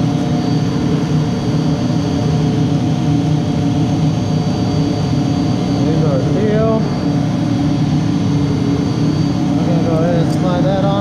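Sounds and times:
high whine: 0.0 - 11.0
machinery low roar: 0.0 - 11.0.

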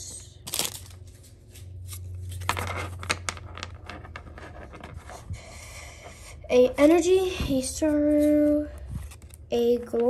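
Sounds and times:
foil wrapper crinkling and tearing: 0.4 - 1.2
cards being handled: 0.4 - 5.2, 8.2 - 9.5.

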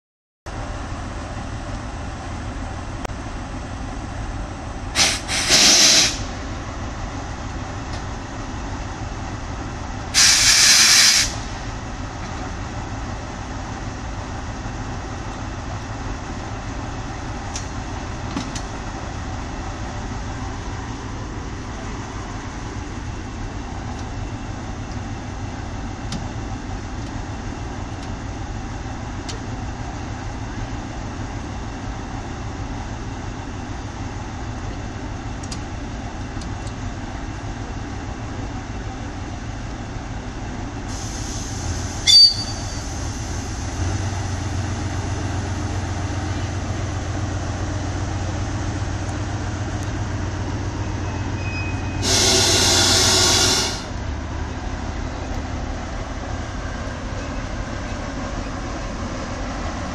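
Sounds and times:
diesel train engines idling: 0.5 - 59.9
compressed air hiss: 5.0 - 6.3, 10.2 - 11.6, 40.9 - 43.8, 52.0 - 54.0.

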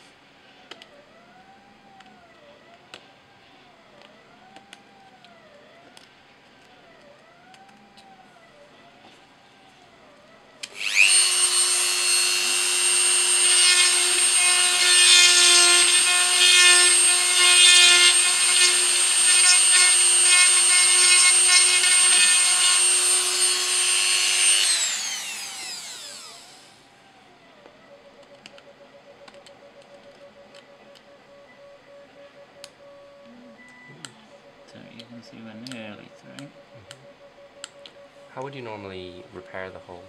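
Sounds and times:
rotary tool drilling plastic: 10.6 - 26.7.

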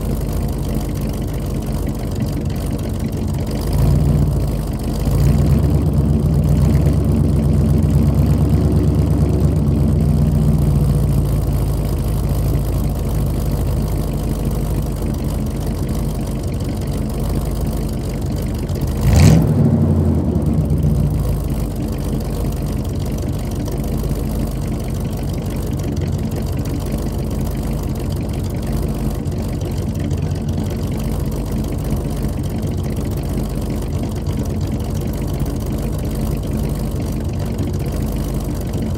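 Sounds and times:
pickup engine idling: 0.0 - 38.9
engine revving: 5.0 - 11.3, 18.9 - 21.5.

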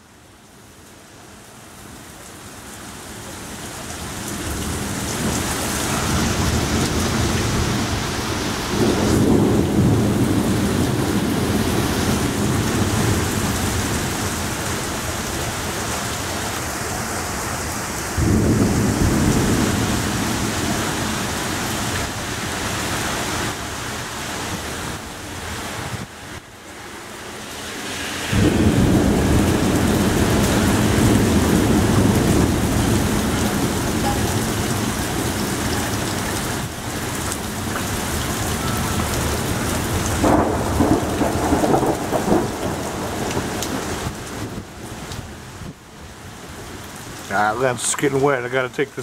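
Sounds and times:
torrential rain pouring: 0.0 - 49.0
thunder rumbling: 4.4 - 15.3, 18.2 - 22.2, 28.2 - 36.7, 37.5 - 44.8
loud thunder claps: 8.7 - 13.3, 18.2 - 20.7, 28.3 - 34.9, 39.9 - 44.7.

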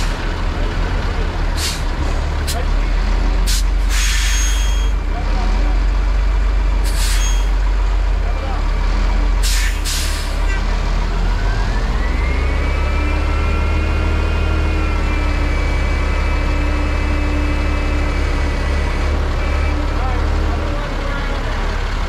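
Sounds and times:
truck diesel engine rumbling: 0.0 - 22.0.

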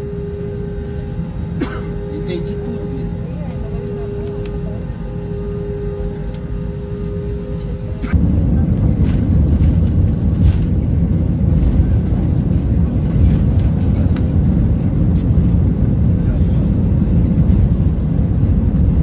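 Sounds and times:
jet engines rumbling at takeoff: 0.0 - 19.0
jet engines whining: 0.0 - 19.0.

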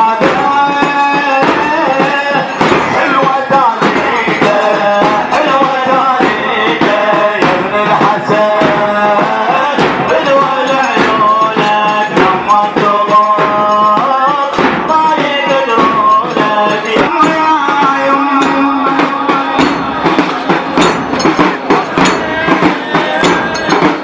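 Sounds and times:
man chanting sung lines: 0.0 - 20.5
steady percussive beat: 0.0 - 24.0.

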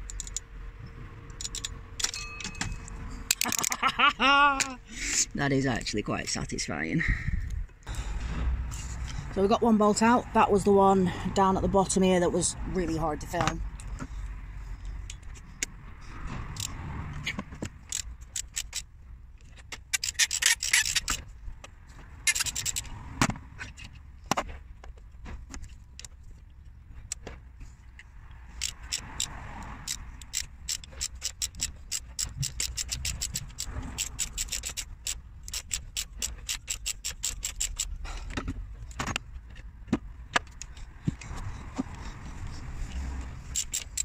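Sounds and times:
socket ratchet clicking: 0.0 - 0.5, 1.2 - 3.8, 16.5 - 21.2, 22.2 - 22.9, 28.5 - 39.4, 43.4 - 44.0
tool scraping on bolt: 16.4 - 21.3, 22.2 - 23.0, 28.5 - 39.6, 40.4 - 44.0.

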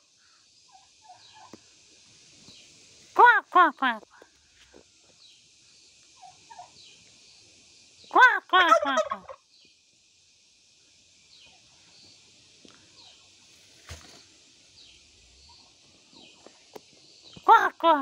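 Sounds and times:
turkey gobbling: 0.7 - 1.6, 6.2 - 6.7, 8.6 - 9.4.

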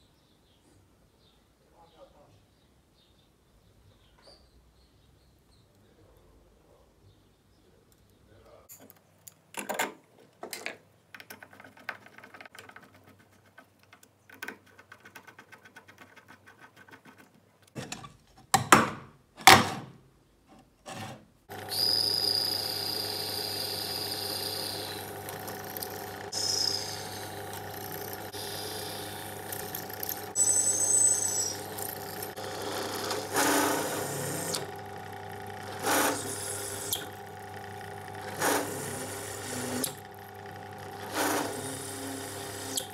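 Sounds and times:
drill press drilling metal: 21.5 - 42.9
drill bit squealing in metal: 21.7 - 25.0, 26.4 - 34.6.

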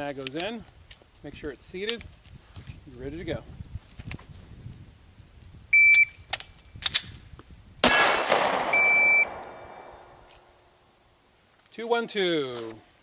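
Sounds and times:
shot timer beep: 5.8 - 6.2, 8.6 - 10.0
gunshot: 7.8 - 10.1
steel target ringing: 7.8 - 10.1.

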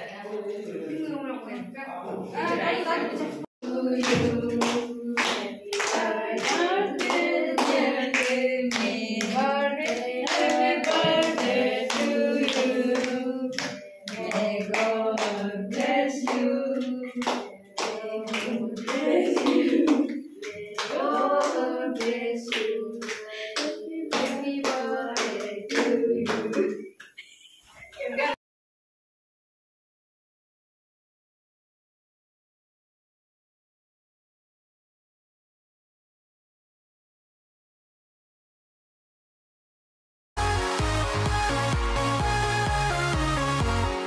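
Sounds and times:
children singing: 2.4 - 27.0
people clapping in time: 3.9 - 27.2.

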